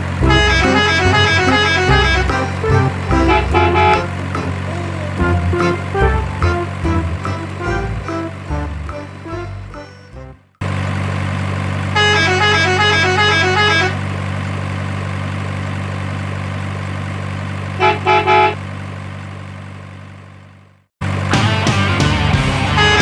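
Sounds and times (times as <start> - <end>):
truck engine idling: 0.0 - 23.0
musical horn playing a tune: 0.2 - 10.4, 12.0 - 14.0, 17.8 - 18.6, 22.7 - 23.0
short horn toots: 0.2 - 10.4, 12.0 - 14.0, 17.8 - 18.6, 22.7 - 23.0
background music: 0.2 - 10.5.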